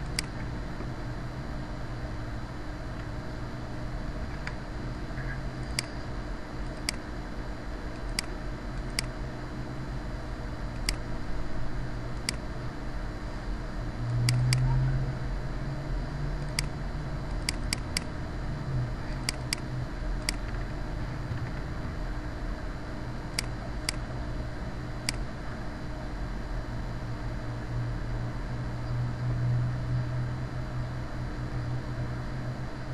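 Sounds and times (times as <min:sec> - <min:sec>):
computer mouse clicking: 0:00.0 - 0:00.4, 0:05.7 - 0:06.0, 0:06.6 - 0:07.0, 0:07.9 - 0:09.1, 0:10.8 - 0:11.1, 0:12.2 - 0:12.4, 0:16.4 - 0:16.7, 0:17.3 - 0:18.1, 0:19.2 - 0:20.7, 0:23.3 - 0:24.0
low hum and hiss: 0:00.0 - 0:32.9.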